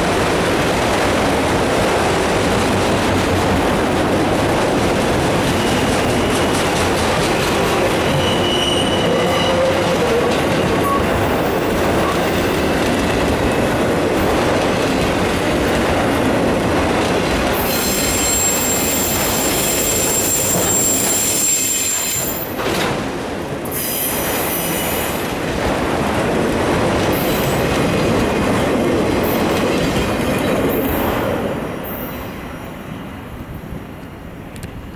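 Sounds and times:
train wheels rumbling on rails: 0.0s - 34.9s
high steady squeal: 17.7s - 22.4s.

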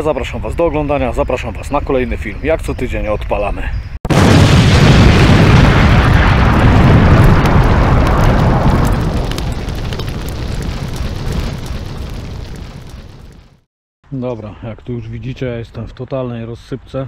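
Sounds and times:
explosion-like boom: 4.1s - 13.7s.

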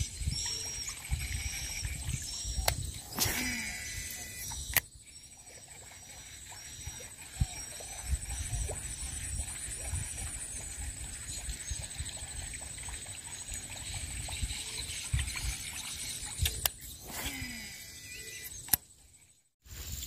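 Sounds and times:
faint high chirp: 0.0s - 9.5s, 13.5s - 19.5s
fishing reel spool whirring: 0.0s - 19.0s
sharp reel click: 2.3s - 4.9s, 16.3s - 18.9s.

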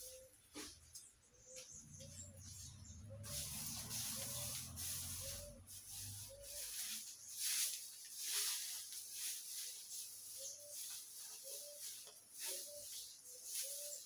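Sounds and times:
broom sweeping dirt and leaves: 0.0s - 14.0s.

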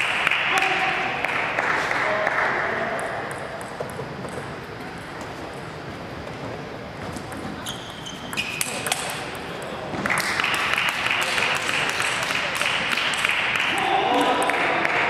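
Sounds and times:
applause: 0.0s - 2.9s, 10.0s - 15.0s
shoes squeaking on floor: 6.2s - 8.9s.

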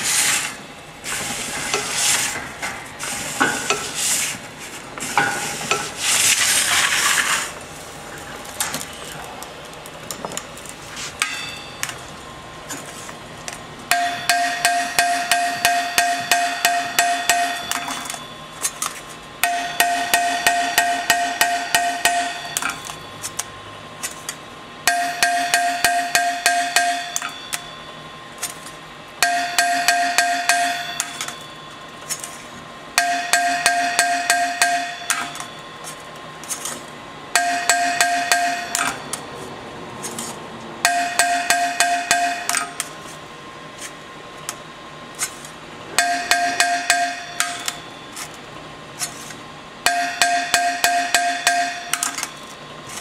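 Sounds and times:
hammer striking saw blade: 0.0s - 4.3s, 5.1s - 7.0s, 11.1s - 12.1s, 13.9s - 32.4s, 33.0s - 43.0s, 45.2s - 48.4s, 49.0s - 53.0s
blade ringing metallic tone: 11.2s - 12.2s, 13.9s - 23.4s, 24.8s - 32.4s, 33.0s - 39.5s, 40.1s - 42.8s, 46.0s - 48.5s, 49.8s - 53.0s.

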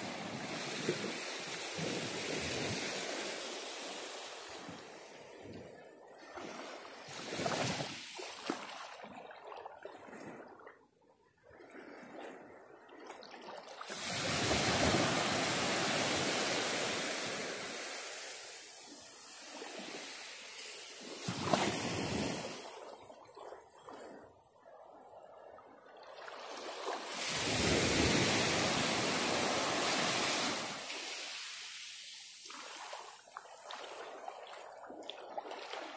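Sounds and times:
small waves washing onto beach: 0.0s - 35.9s.

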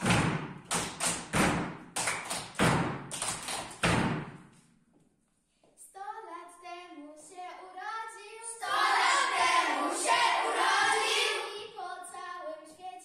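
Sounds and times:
children singing: 8.5s - 12.1s.

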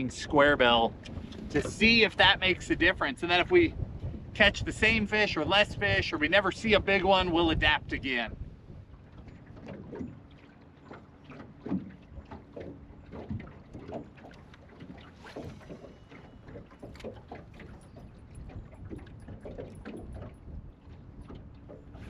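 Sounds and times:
light wind: 0.0s - 22.0s
waves slapping against boat hull: 0.0s - 22.0s.

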